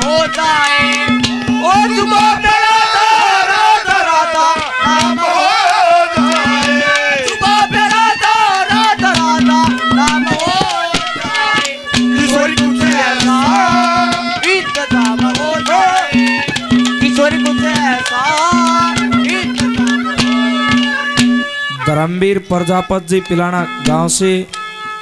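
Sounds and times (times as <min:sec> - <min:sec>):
hand drum strokes: 0:00.0 - 0:02.7, 0:03.9 - 0:22.1
ornamented melodic instrument: 0:00.0 - 0:25.0.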